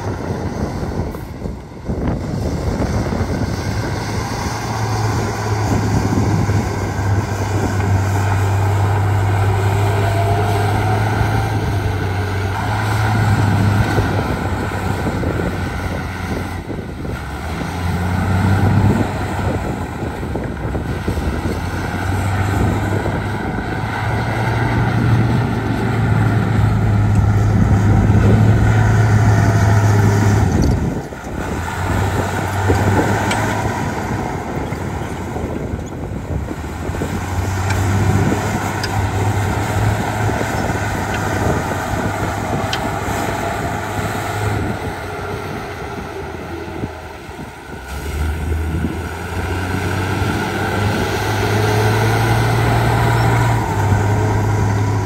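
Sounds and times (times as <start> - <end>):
heavy diesel machinery engine drone: 0.0 - 55.0.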